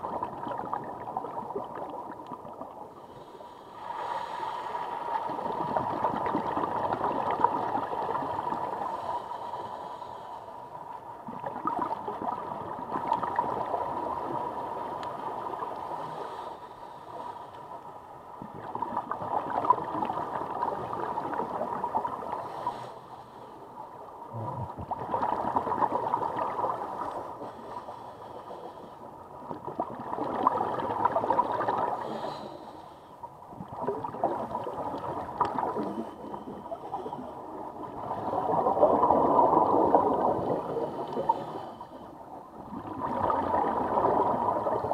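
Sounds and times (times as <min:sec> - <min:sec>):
exhaled bubbles rushing: 0:00.0 - 0:02.8, 0:05.3 - 0:08.6, 0:11.3 - 0:14.4, 0:24.3 - 0:27.0, 0:29.5 - 0:32.0, 0:33.5 - 0:36.1, 0:37.8 - 0:41.4, 0:42.6 - 0:44.9
diver breathing through regulator: 0:03.0 - 0:05.0, 0:08.8 - 0:10.7, 0:15.9 - 0:17.6, 0:22.4 - 0:23.6, 0:27.3 - 0:29.1, 0:31.9 - 0:33.2, 0:40.4 - 0:42.2.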